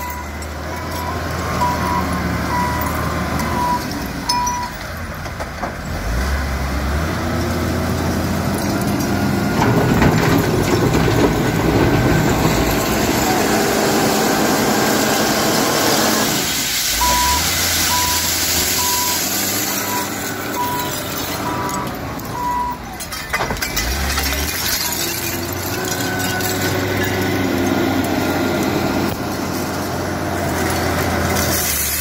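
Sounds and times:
wheel loader diesel engine revving: 0:00.0 - 0:04.6, 0:05.7 - 0:23.0, 0:23.7 - 0:32.0
reversing alarm beeping: 0:00.0 - 0:04.8, 0:17.0 - 0:22.8.

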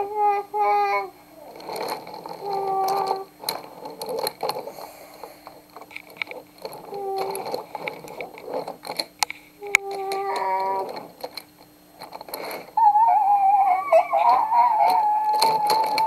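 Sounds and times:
toy train wheels clattering on track: 0:00.0 - 0:16.0
child singing: 0:12.8 - 0:16.0.

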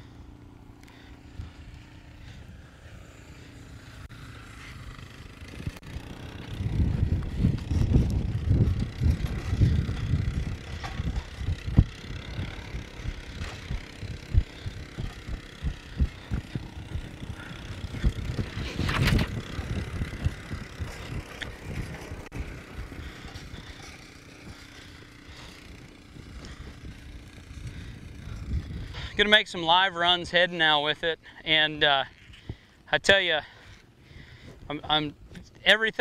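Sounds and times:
faint atv engine running: 0:00.0 - 0:36.0
rope whooshing: 0:04.6 - 0:24.7
wind buffeting microphone: 0:05.3 - 0:30.3
horse hooves thumping in sand: 0:06.7 - 0:24.8.

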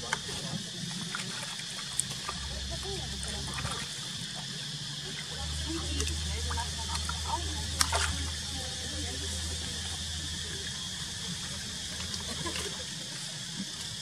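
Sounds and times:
low hum: 0:00.0 - 0:14.0
water sloshing and lapping: 0:00.0 - 0:14.0.

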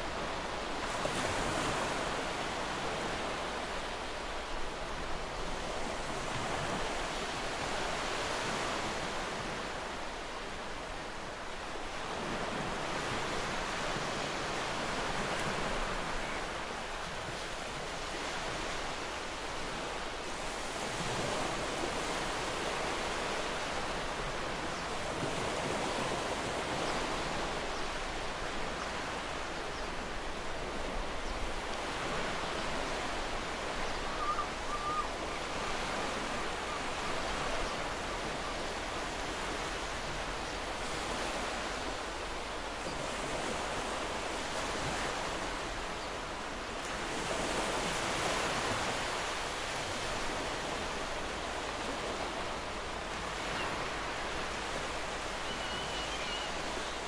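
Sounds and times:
sea surf washing ashore: 0:00.0 - 0:57.0.

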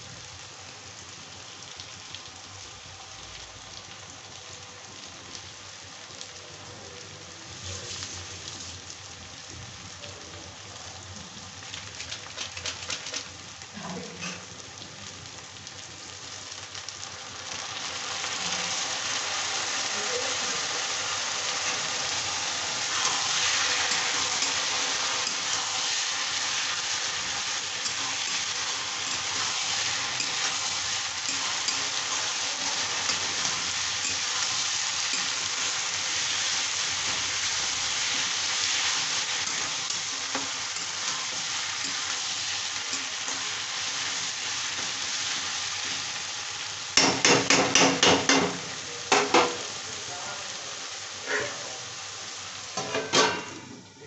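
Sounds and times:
onions and tomatoes sizzling in oil: 0:00.0 - 0:54.0
spatula knocking on pan: 0:47.0 - 0:49.6
metal spatula scraping pan: 0:51.2 - 0:51.6.

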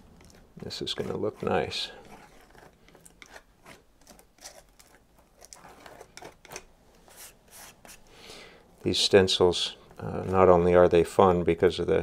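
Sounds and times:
paintbrush brushing and scraping: 0:00.0 - 0:08.1.

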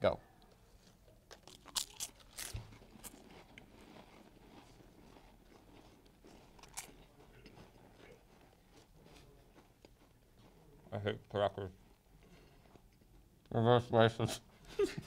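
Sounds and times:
faint chewing: 0:00.4 - 0:13.5
crackers crunching: 0:00.5 - 0:10.6.

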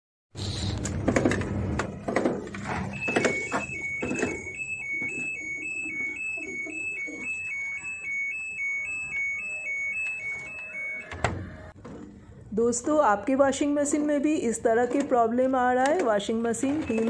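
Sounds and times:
electronic beeping tune: 0:02.7 - 0:11.8, 0:16.7 - 0:17.0.

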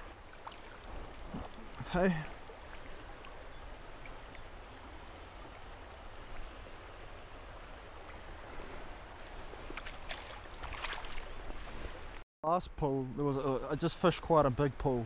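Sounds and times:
water splashes: 0:00.0 - 0:07.0, 0:09.5 - 0:12.2
stream rushing: 0:00.0 - 0:12.2.

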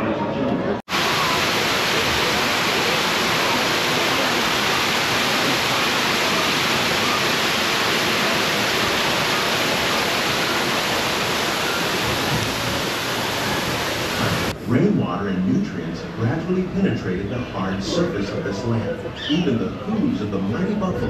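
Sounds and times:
waterfall splashing into water: 0:00.9 - 0:14.5.

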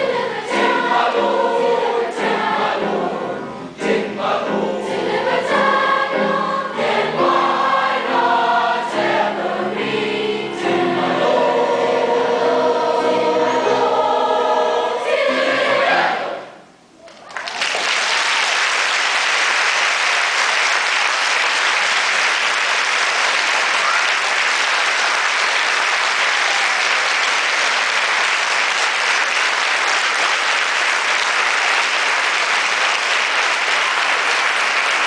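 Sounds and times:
audience applauding: 0:17.0 - 0:35.0.

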